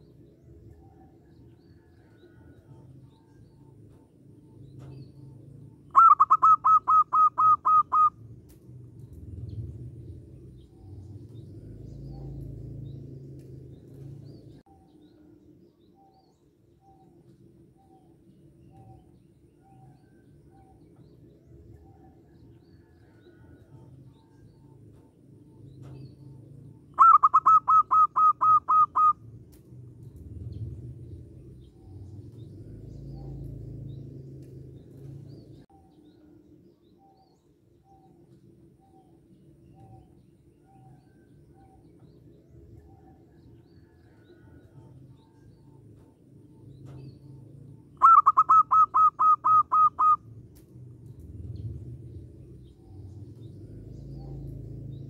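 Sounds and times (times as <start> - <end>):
dove cooing: 5.9 - 8.2, 26.9 - 29.2, 48.0 - 50.3.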